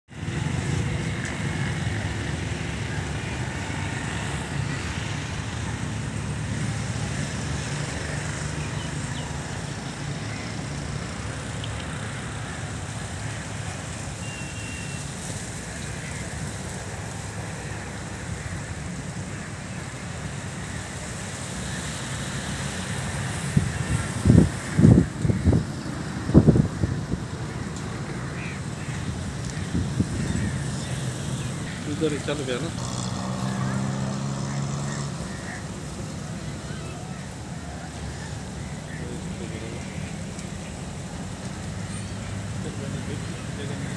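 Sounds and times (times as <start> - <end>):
road traffic rumble: 0.1 - 43.9
wind on microphone: 23.4 - 28.0, 29.1 - 30.8.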